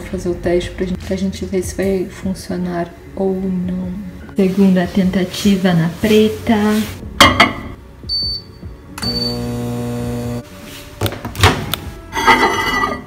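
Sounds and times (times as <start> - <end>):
keypad beeps: 8.1 - 8.5
microwave oven humming: 9.0 - 10.4.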